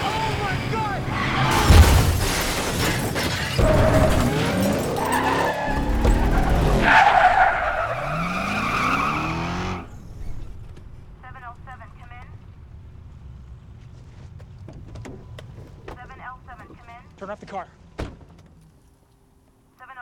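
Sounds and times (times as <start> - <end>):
car engine revving: 0.0 - 16.7
tyres skidding and squealing: 0.0 - 18.8
loud crash: 1.3 - 6.9.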